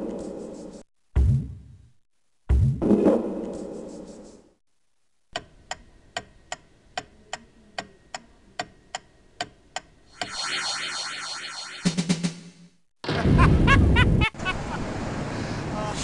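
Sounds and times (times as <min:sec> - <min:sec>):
clock ticking: 0:05.3 - 0:10.4
music: 0:11.8 - 0:12.8.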